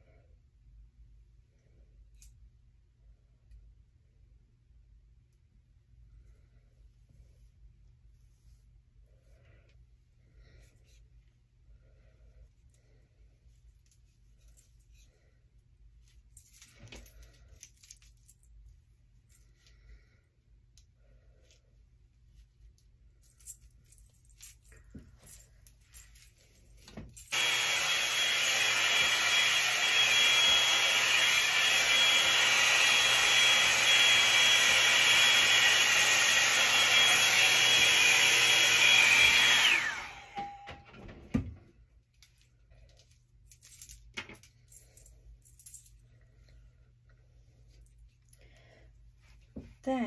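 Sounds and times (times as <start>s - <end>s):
hot air brush whining: 27.3s - 40.8s.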